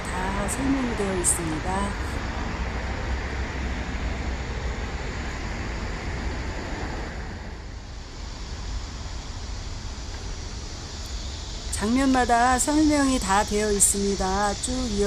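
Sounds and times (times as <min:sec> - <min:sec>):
hiss: 0:07.8 - 0:15.0.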